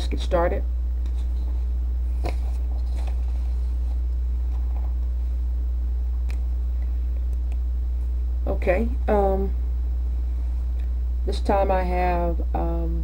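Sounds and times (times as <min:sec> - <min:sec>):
low electrical hum: 0:00.0 - 0:13.0
paper rustling: 0:01.1 - 0:05.0.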